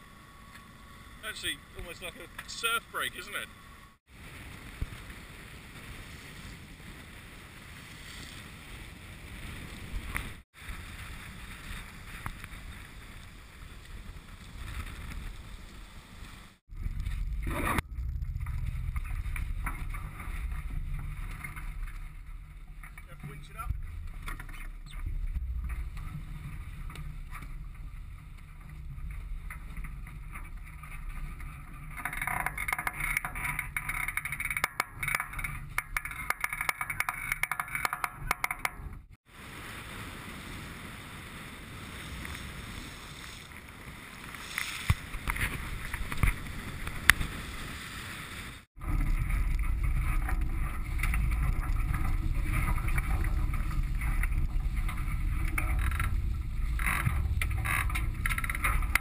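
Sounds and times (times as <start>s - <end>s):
water rushing past hulls: 0.3s - 33.6s, 39.2s - 59.0s
wind rumbling on microphone: 3.6s - 59.0s.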